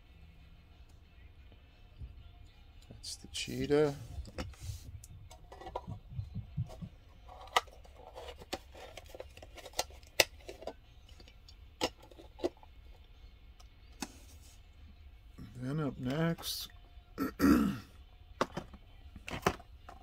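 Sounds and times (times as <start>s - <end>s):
soft rubbing rumble: 3.8s - 8.2s.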